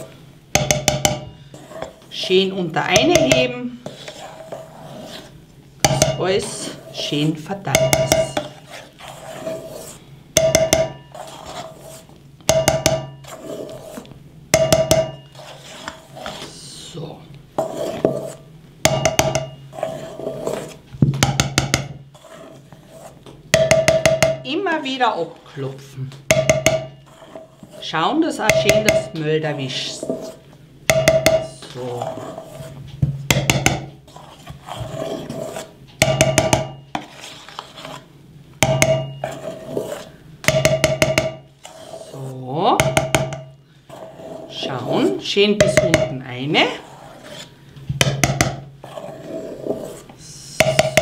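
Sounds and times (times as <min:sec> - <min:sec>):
spoon folding thick batter: 0:00.0 - 0:25.5, 0:26.2 - 0:51.0
spoon tapping metal bowl: 0:00.6 - 0:01.4, 0:02.9 - 0:03.5, 0:05.8 - 0:06.3, 0:07.7 - 0:08.5, 0:10.4 - 0:11.1, 0:12.4 - 0:13.2, 0:14.5 - 0:15.3, 0:18.8 - 0:19.6, 0:23.5 - 0:24.4, 0:26.3 - 0:27.0, 0:28.5 - 0:29.2, 0:30.9 - 0:31.5, 0:36.0 - 0:36.9, 0:38.6 - 0:39.2, 0:40.4 - 0:41.5, 0:42.8 - 0:43.5, 0:45.6 - 0:46.2, 0:50.6 - 0:51.0.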